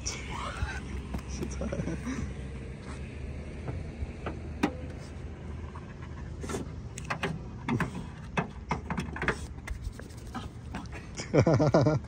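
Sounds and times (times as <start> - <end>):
low steady rumble: 0.0 - 12.0
car hood clicks and knocks: 7.0 - 9.4.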